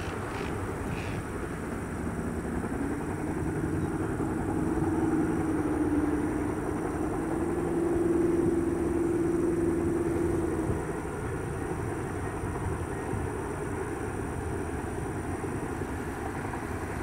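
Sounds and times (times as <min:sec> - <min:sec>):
helicopters running: 0:00.0 - 0:17.0.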